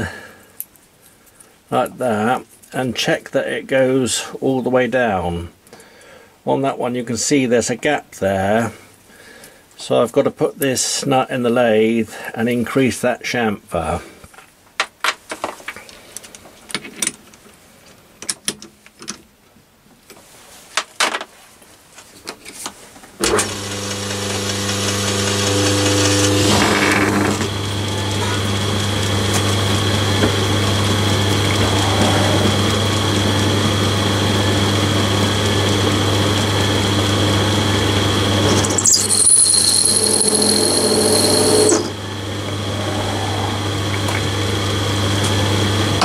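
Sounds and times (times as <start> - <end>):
high whine of cutting tool: 23.2 - 46.0
lathe motor hum: 23.2 - 46.0.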